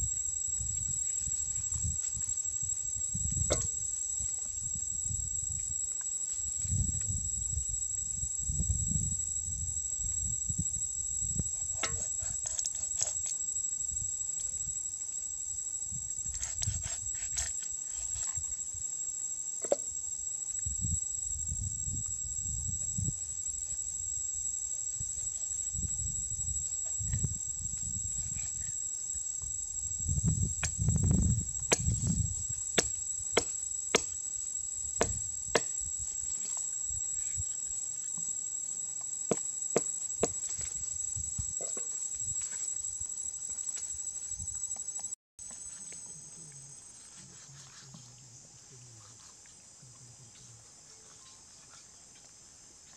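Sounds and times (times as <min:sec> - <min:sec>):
high insect buzz: 0:00.0 - 0:52.9
knife chopping into wood: 0:32.8 - 0:34.2, 0:35.0 - 0:35.8.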